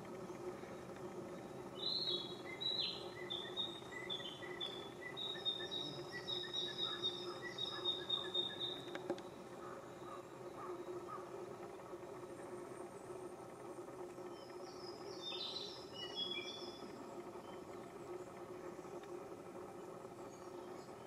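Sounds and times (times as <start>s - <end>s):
low background hum: 0.0s - 21.0s
songbird chirping: 1.8s - 8.9s, 14.3s - 16.8s.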